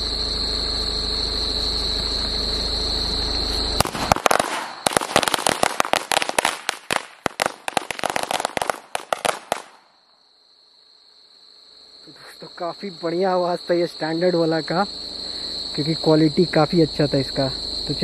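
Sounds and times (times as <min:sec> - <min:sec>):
firecracker string banging: 0:03.8 - 0:09.9.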